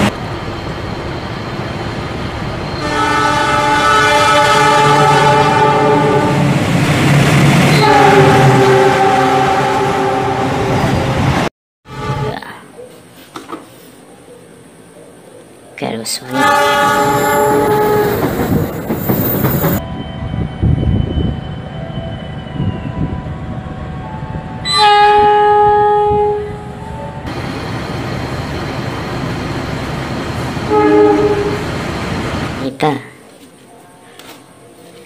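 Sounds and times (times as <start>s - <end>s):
low rumble of trains: 0.0s - 12.7s, 14.1s - 35.0s
locomotive horn: 2.8s - 6.5s, 7.7s - 10.9s, 11.9s - 12.4s, 16.3s - 18.4s, 24.6s - 27.0s, 30.7s - 31.6s.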